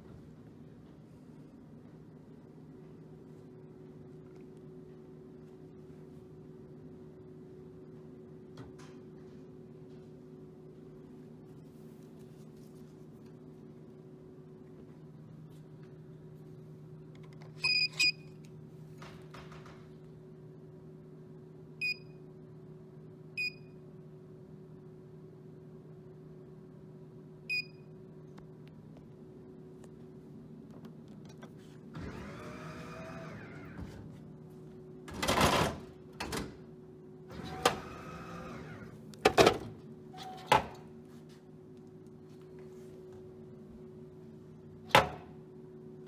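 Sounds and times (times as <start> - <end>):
steady low hum: 0.0 - 40.2, 40.8 - 46.0
card reader beeping: 17.6 - 18.4
motor whine: 31.9 - 34.1, 37.3 - 39.0.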